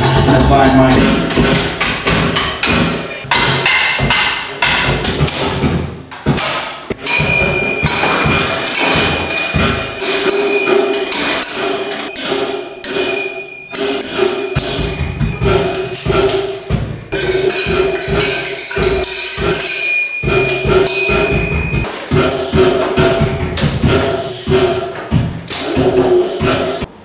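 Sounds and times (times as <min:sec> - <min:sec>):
hits on metal bars and wood: 0:00.0 - 0:26.9
held ringing tone: 0:07.0 - 0:15.9, 0:17.2 - 0:22.8.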